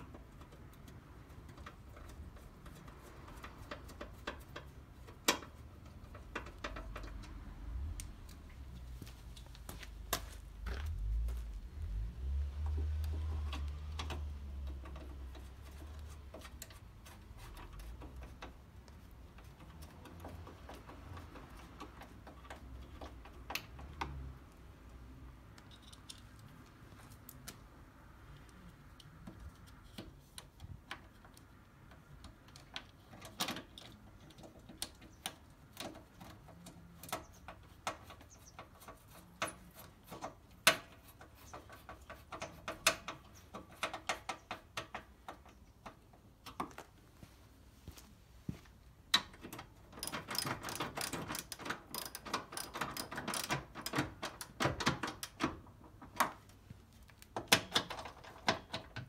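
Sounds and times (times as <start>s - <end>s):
metallic clicks of hand tools: 49.1s - 55.5s.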